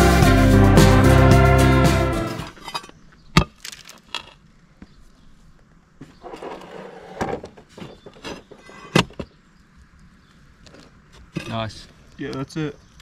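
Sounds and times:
asphalt crunching: 2.5s - 9.4s.

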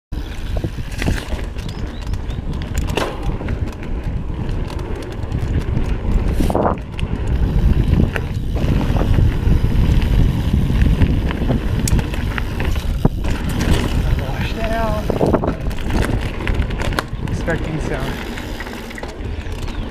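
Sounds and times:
wind buffeting microphone: 0.1s - 19.9s
bike clicks and rattles: 0.2s - 19.9s
bike rolling over dirt trail: 0.2s - 19.9s.

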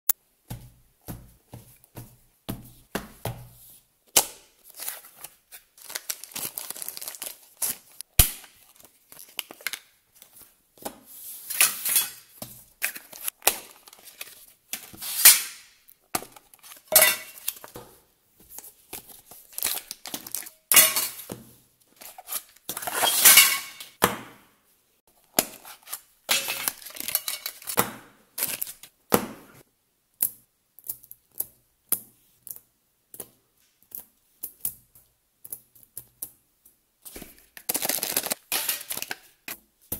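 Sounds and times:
plastic wrapping tearing and crinkling: 4.7s - 10.0s, 19.4s - 20.5s, 37.6s - 39.2s.

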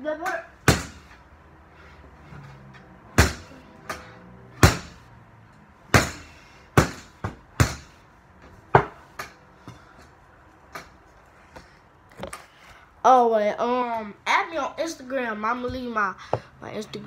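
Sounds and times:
fist punches on punching ball: 3.2s - 3.5s, 4.6s - 5.0s, 5.9s - 7.9s.

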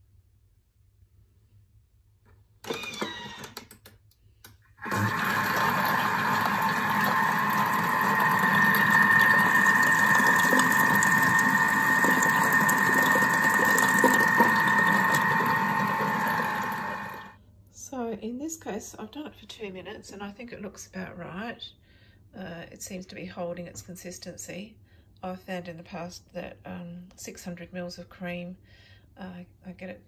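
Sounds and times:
kitchen machine motor whine: 2.7s - 3.5s, 4.8s - 17.4s
cream churning: 4.8s - 17.4s.

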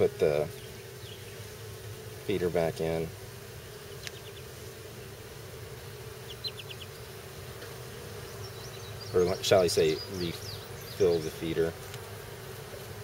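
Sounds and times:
honeybees buzzing: 0.0s - 13.0s
faint high ticks: 4.0s - 4.2s.

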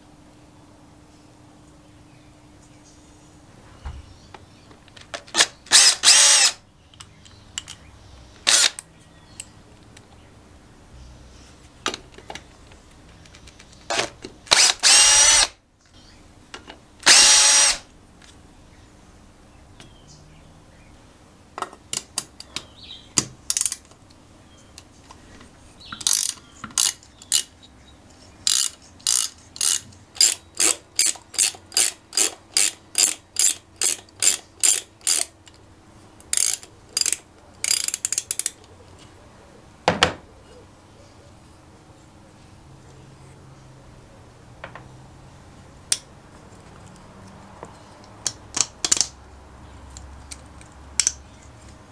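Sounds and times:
cordless drill whirring: 5.4s - 6.6s, 8.4s - 8.8s, 14.5s - 15.5s, 17.0s - 17.9s
ratcheting spanner clicking: 23.5s - 23.9s, 26.0s - 27.5s, 28.4s - 35.6s, 36.2s - 38.6s, 48.2s - 49.1s.

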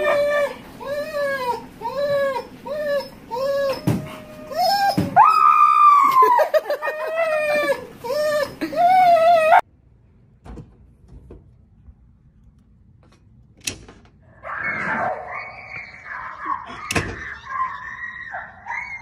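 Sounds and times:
dog howling and whining: 0.0s - 9.6s, 14.4s - 19.0s.

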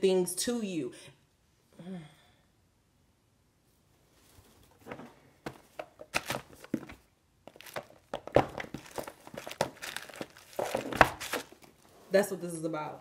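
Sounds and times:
cards being shuffled: 5.4s - 11.8s.

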